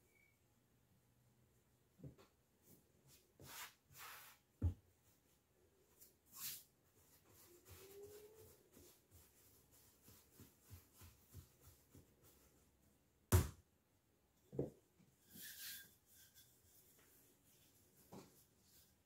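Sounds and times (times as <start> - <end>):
soft pats on dough: 7.1 - 13.6.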